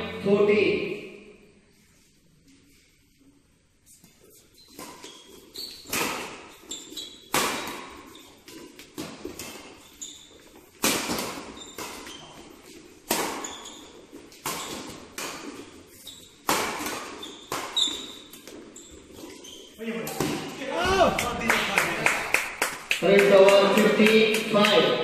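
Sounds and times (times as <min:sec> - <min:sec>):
shoes squeaking on court: 0:03.9 - 0:21.4
racquet striking shuttlecock: 0:10.8 - 0:12.3, 0:16.4 - 0:18.6.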